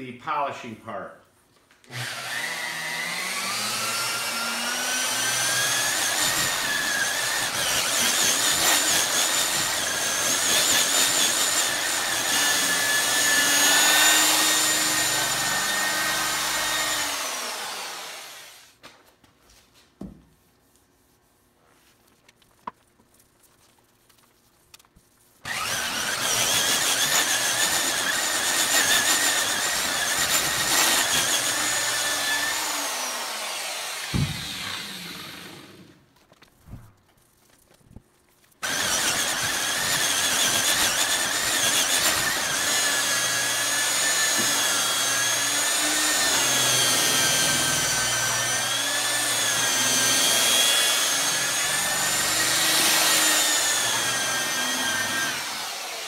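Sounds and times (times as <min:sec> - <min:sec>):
electric buffer motor whine: 0:25.5 - 0:26.4, 0:42.3 - 0:56.0.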